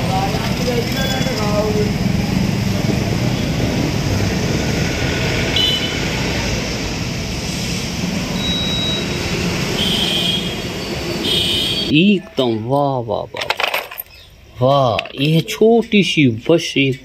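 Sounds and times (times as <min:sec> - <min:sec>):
motorcycle engine passing by: 0:00.0 - 0:06.8.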